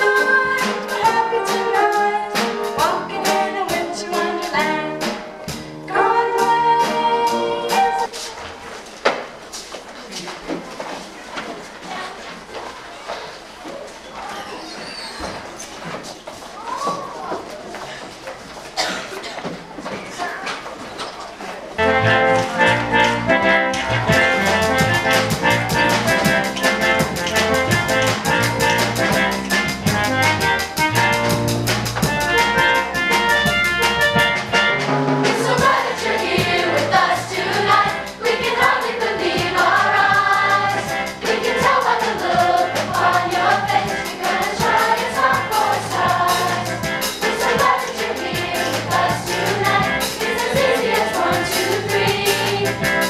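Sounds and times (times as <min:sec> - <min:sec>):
instrumental music with drum beat: 0:00.0 - 0:08.2, 0:21.8 - 0:53.0
choir singing: 0:05.9 - 0:08.1, 0:35.2 - 0:53.0.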